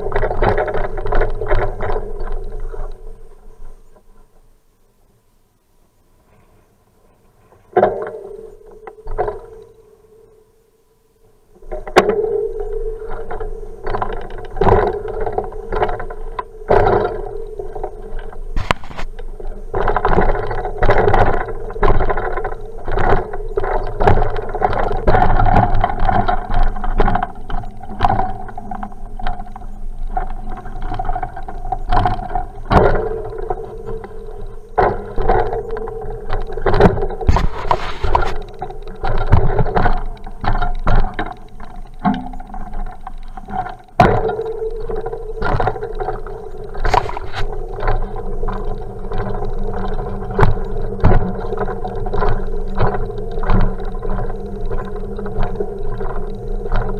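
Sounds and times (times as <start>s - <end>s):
bicycle rolling rumble: 0.0s - 4.5s, 11.3s - 56.9s
bike knocks and rattles: 13.9s - 19.2s, 30.8s - 56.9s.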